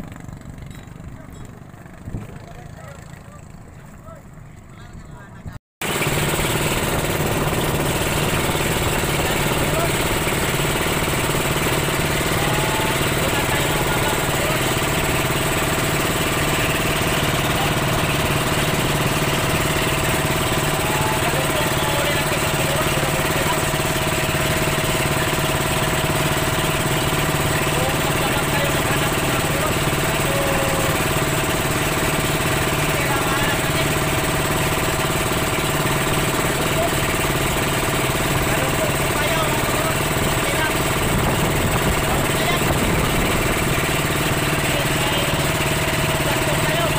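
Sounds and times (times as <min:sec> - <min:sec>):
motor boat engine droning: 0:00.0 - 0:46.9.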